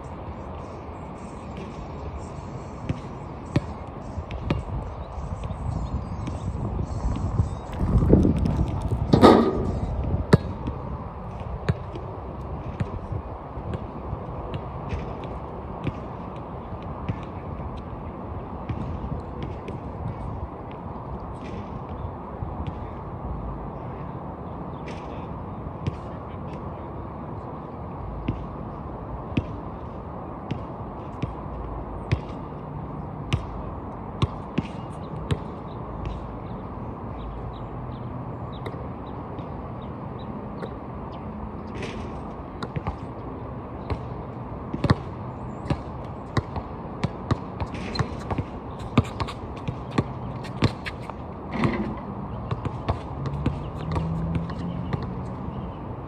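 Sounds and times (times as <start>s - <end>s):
basketball bouncing on court: 2.8s - 4.6s, 9.0s - 10.9s, 13.7s - 16.1s, 17.0s - 17.4s, 18.7s - 20.3s, 25.8s - 26.1s, 29.4s - 29.6s, 30.5s - 31.4s, 32.0s - 32.4s, 33.3s - 33.6s, 34.2s - 36.3s, 41.7s - 43.2s, 43.8s - 55.3s.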